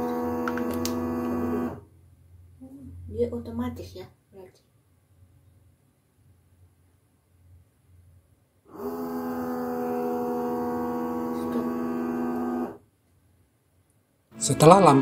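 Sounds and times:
vacuum sealer humming: 0.0 - 1.8, 8.7 - 12.8.

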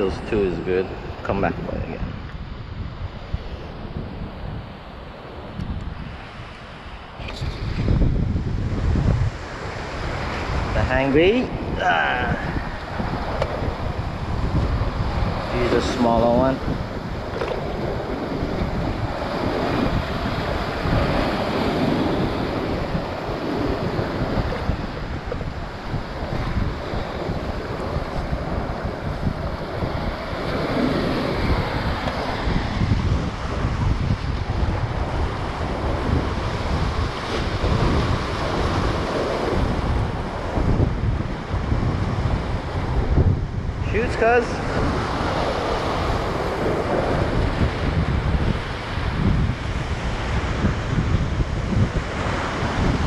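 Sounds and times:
ocean surf on rocks: 0.0 - 53.0
wind buffeting microphone: 0.0 - 53.0.

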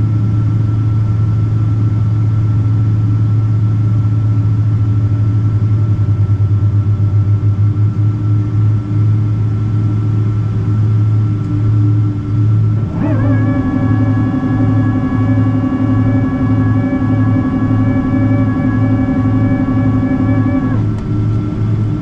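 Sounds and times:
jet engine drone in cabin: 0.0 - 22.0
thin steady whine: 7.9 - 22.0.

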